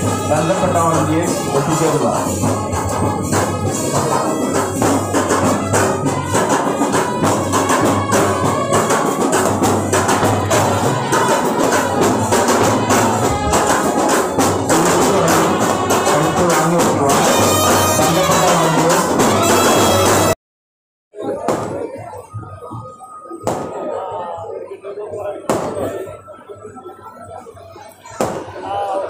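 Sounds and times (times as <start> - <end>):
procession band music: 0.0 - 20.4
rapid percussion beat: 0.0 - 20.4.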